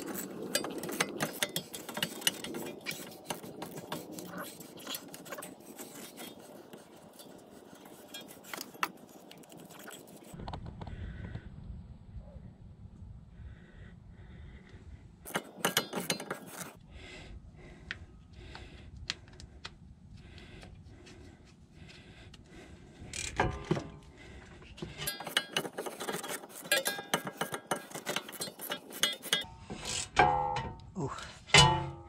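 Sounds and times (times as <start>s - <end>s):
metal tools clinking: 0.0s - 10.4s, 15.3s - 16.8s, 24.9s - 30.8s.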